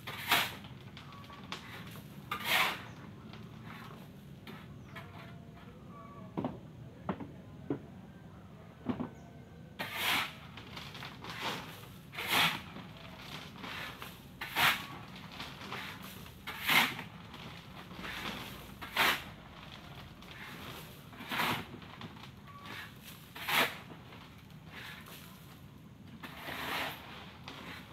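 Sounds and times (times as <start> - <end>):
shovel scraping gravel: 0.0 - 3.0, 3.6 - 5.4, 9.8 - 25.6, 26.2 - 27.9.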